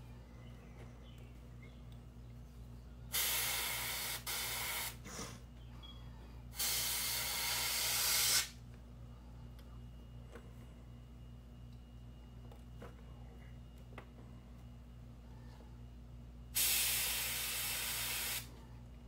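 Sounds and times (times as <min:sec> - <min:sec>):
airbrush spraying paint: 0:03.1 - 0:05.0, 0:06.6 - 0:08.6, 0:16.6 - 0:18.5.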